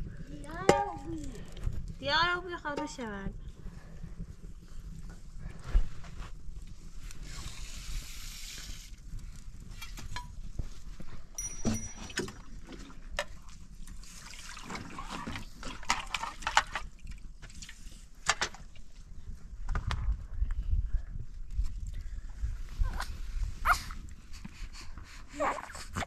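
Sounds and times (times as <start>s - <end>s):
metal cookware clinking: 11.4s - 12.4s.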